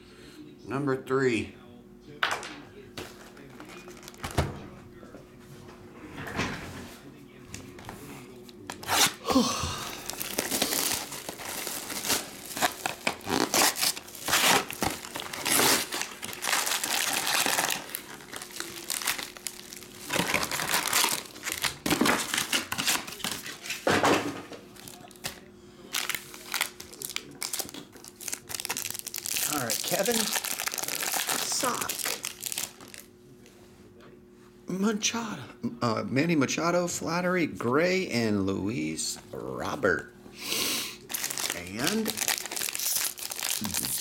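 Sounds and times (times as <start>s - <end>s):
foil packs rustling: 3.2s - 4.4s, 9.9s - 23.9s, 24.7s - 33.1s, 41.0s - 44.0s
plastic wrap crinkling: 3.4s - 4.3s, 10.0s - 23.8s, 24.7s - 33.1s, 41.0s - 44.0s
plastic tearing: 3.5s - 4.4s, 8.6s - 9.2s, 10.0s - 23.9s, 24.7s - 33.1s, 41.1s - 44.0s.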